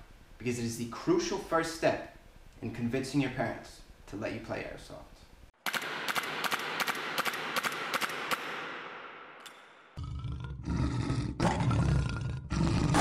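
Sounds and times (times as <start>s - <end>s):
sharp cracks: 5.6s - 10.0s.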